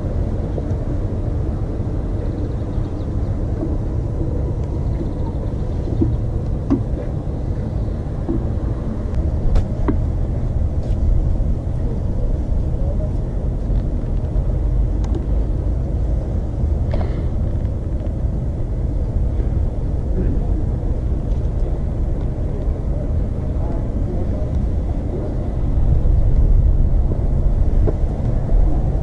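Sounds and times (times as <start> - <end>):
moving vehicle rumble: 0.0 - 29.0
faint clicks and knocks: 3.6 - 7.2.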